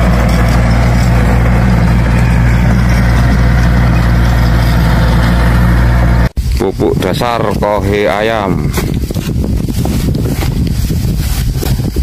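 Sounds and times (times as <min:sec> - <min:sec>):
tractor engine running: 0:00.0 - 0:06.4.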